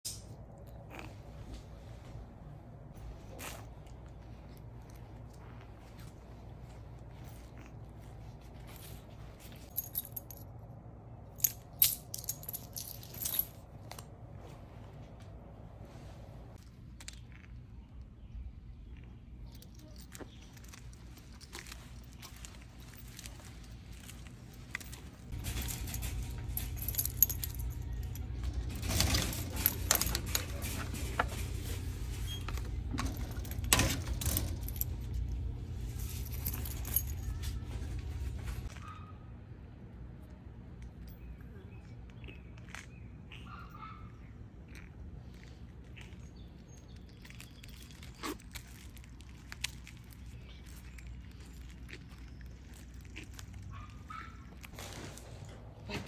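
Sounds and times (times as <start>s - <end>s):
keys jangling: 9.5s - 10.5s, 11.4s - 14.0s, 19.5s - 31.6s, 32.3s - 38.3s.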